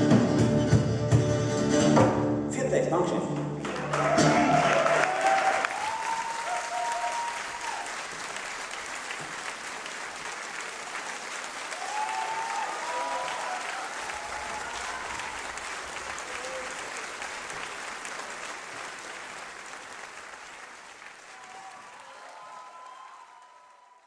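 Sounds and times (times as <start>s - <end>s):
audience applauding: 3.4s - 24.0s
crowd calls: 3.6s - 9.9s, 10.6s - 18.3s.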